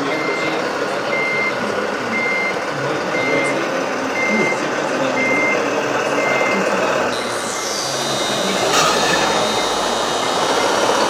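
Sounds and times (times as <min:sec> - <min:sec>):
constant noisy background: 0:00.0 - 0:11.0
reversing beeper: 0:00.0 - 0:11.0.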